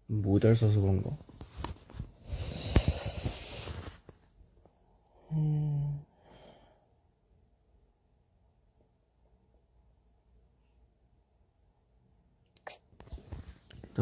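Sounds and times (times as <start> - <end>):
man humming: 5.2 - 6.1.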